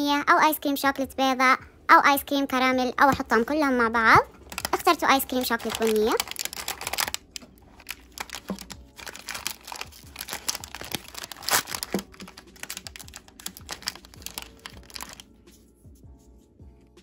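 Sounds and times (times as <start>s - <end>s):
foil wrapper crinkling and tearing: 4.4s - 15.3s.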